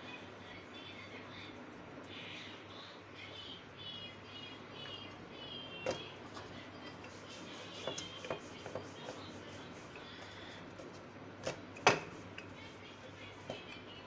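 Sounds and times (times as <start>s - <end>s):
rolling pin rubbing dough: 5.4s - 14.0s.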